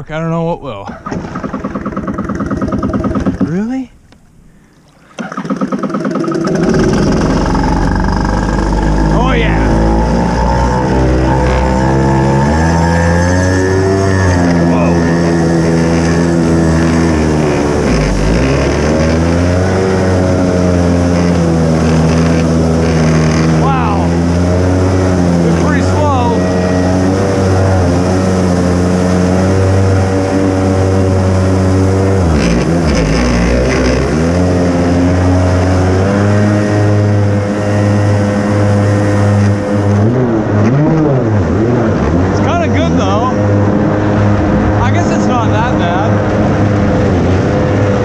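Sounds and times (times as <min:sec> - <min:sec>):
jet ski engine running: 0:00.0 - 0:48.0
rushing water: 0:04.8 - 0:37.4.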